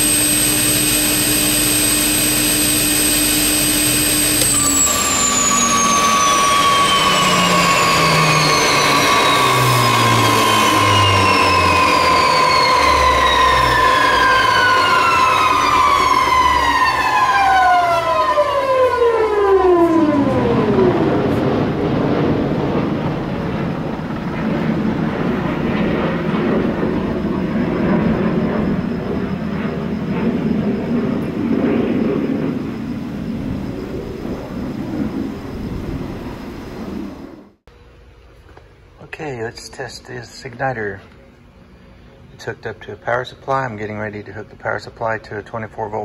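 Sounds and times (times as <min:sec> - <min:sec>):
steady high tone: 0:00.0 - 0:21.1
turbine whine falling in pitch: 0:00.0 - 0:42.8.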